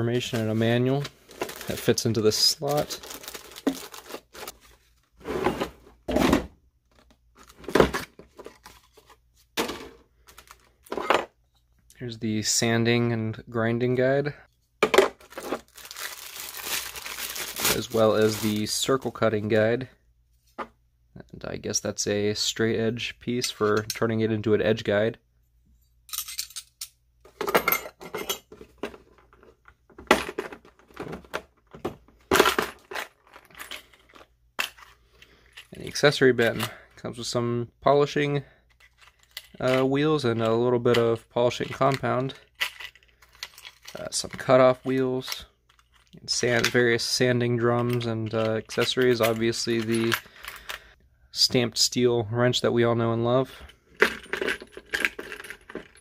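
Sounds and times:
paper and cardboard packaging rustling: 0.0s - 6.2s, 6.9s - 11.1s, 15.2s - 19.2s
plastic parts knocking on plastic case: 14.8s - 15.6s.

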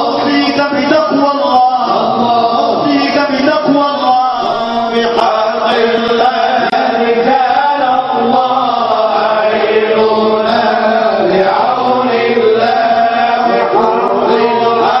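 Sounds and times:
men chanting a devotional hymn: 0.0s - 15.0s.

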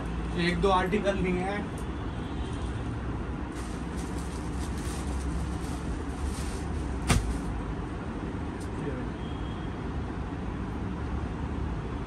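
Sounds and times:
plastic packaging rustling: 3.5s - 7.5s.

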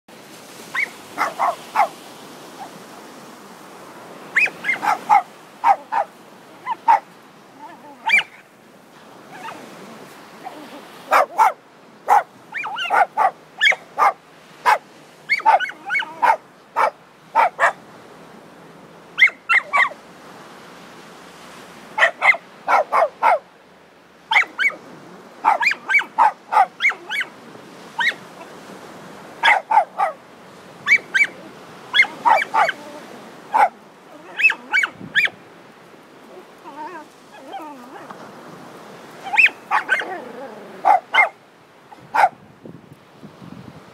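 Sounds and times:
dog barking and yipping: 0.7s - 2.0s, 4.4s - 8.4s, 9.3s - 9.6s, 10.4s - 17.8s, 19.2s - 20.0s, 22.0s - 23.4s, 24.3s - 24.8s, 25.4s - 27.3s, 28.0s - 28.2s, 29.4s - 30.2s, 30.8s - 35.4s, 39.2s - 42.4s.

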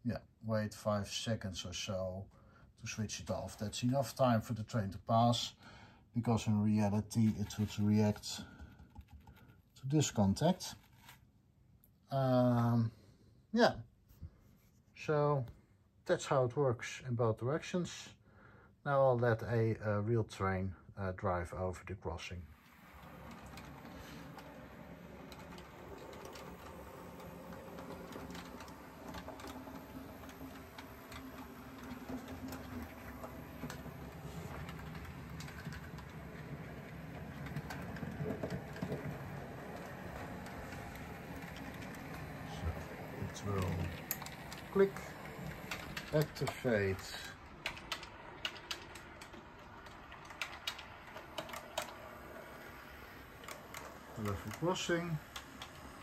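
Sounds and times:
model train motor hum: 22.5s - 56.0s
light track clicks: 22.6s - 56.0s.

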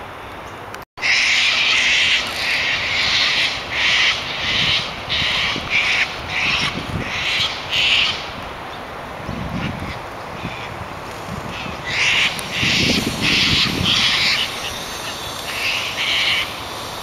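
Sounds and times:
cockatoos screeching: 1.0s - 8.3s, 11.4s - 17.0s.

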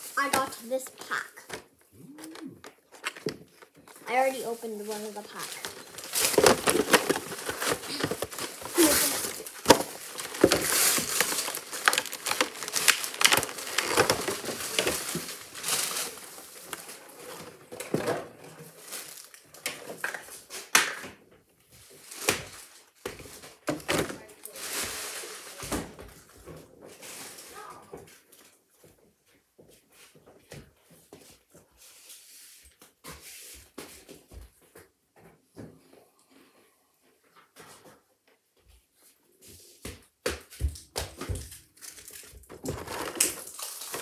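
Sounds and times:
plastic wrapping crinkling: 0.0s - 17.9s, 18.6s - 20.6s, 21.8s - 26.0s, 41.3s - 44.0s.

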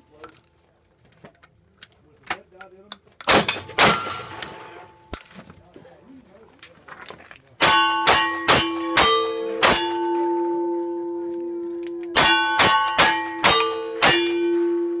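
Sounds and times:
revolver gunshots: 3.3s - 4.9s
steel target clanging: 3.3s - 5.2s, 7.6s - 15.0s.

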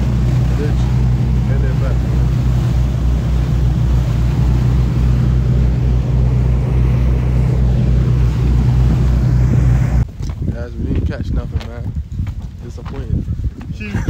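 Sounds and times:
boat engine droning: 0.0s - 10.1s
churning wake rushing: 0.0s - 11.7s.

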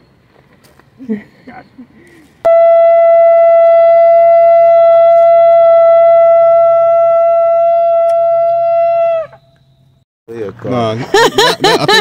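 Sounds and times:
shofar long steady note: 2.5s - 9.4s.

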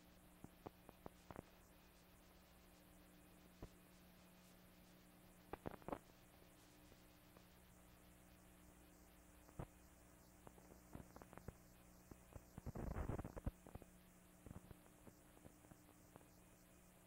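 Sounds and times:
faint hum and hiss: 0.0s - 17.0s
film clicks and crackle: 5.5s - 6.0s.

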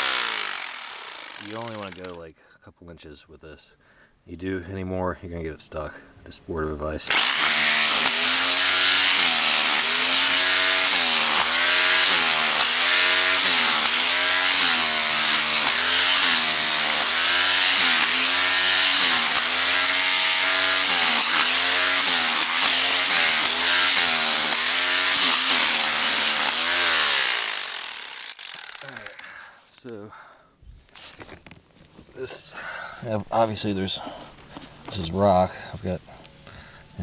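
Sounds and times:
hammer drill chipping rock: 0.0s - 2.2s, 7.0s - 29.3s.

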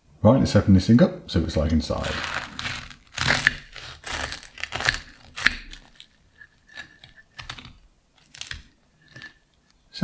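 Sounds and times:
pastry crunching and crackling: 1.9s - 9.8s.

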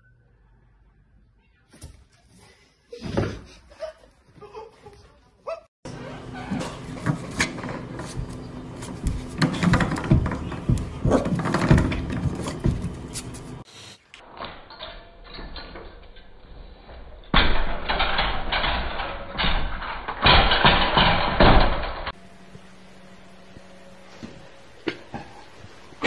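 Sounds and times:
knocking and scratching on door: 6.4s - 13.1s
metal gate rattling and clattering: 9.1s - 13.0s, 14.5s - 22.2s.

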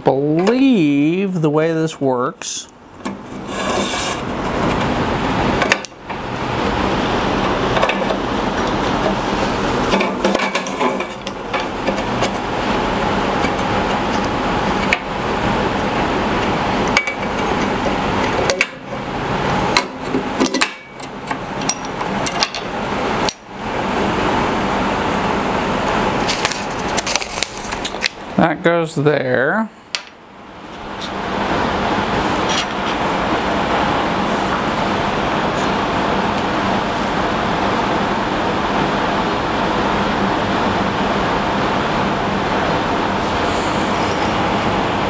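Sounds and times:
steady rushing noise: 3.2s - 20.4s.

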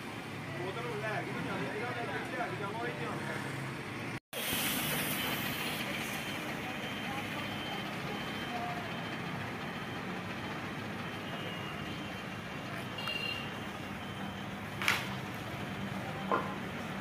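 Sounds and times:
diesel engine idling: 4.7s - 17.0s.

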